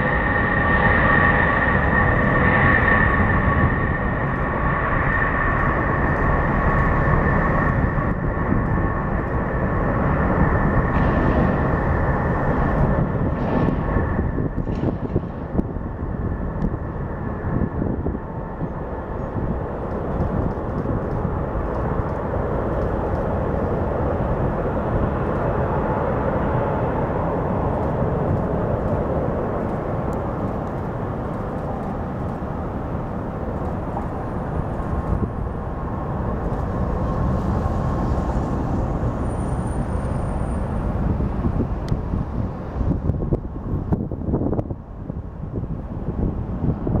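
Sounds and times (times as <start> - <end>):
faint jet whine: 0.0 - 47.0
jet engine rumble: 0.0 - 47.0.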